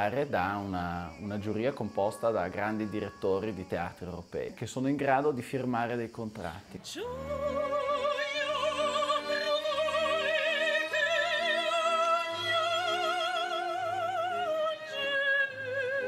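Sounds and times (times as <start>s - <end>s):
female opera singer: 6.8s - 16.0s
string orchestra: 6.8s - 16.0s.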